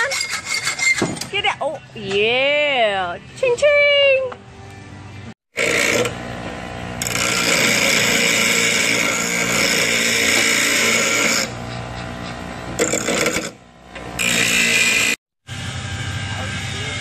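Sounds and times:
power grinder cutting steel: 0:05.5 - 0:17.0.

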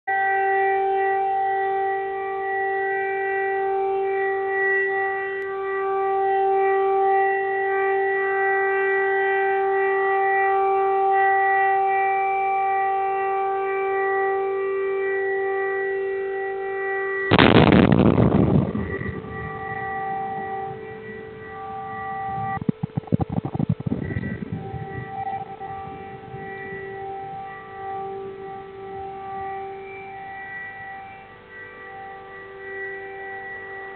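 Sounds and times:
air-raid siren: 0:00.1 - 0:33.9
explosion blast: 0:17.3 - 0:27.7.

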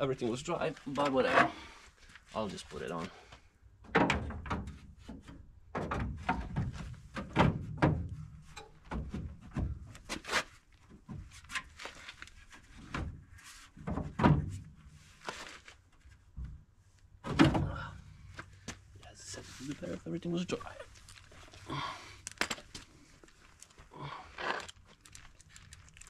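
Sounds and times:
metal frame thunks and knocks: 0:03.8 - 0:09.9, 0:17.2 - 0:17.9.

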